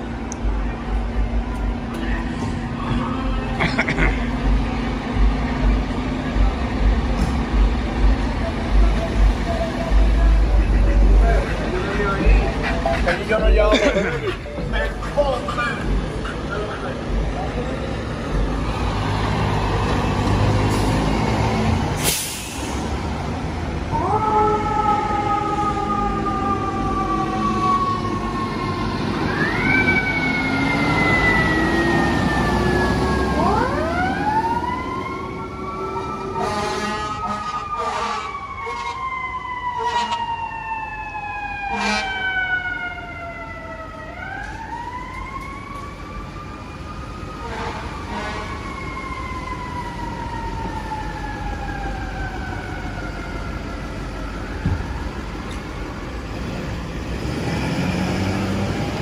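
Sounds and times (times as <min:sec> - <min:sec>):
wailing sirens: 0:00.0 - 0:59.0
air horn blasts: 0:36.4 - 0:39.0, 0:39.8 - 0:40.2, 0:41.7 - 0:42.1, 0:47.4 - 0:48.6.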